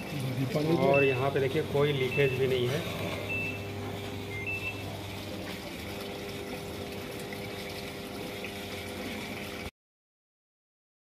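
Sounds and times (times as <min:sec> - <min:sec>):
washing machine filling with water: 0:00.0 - 0:09.7
short high beeps: 0:00.8 - 0:01.4, 0:02.0 - 0:02.6, 0:03.2 - 0:03.7, 0:04.3 - 0:04.9.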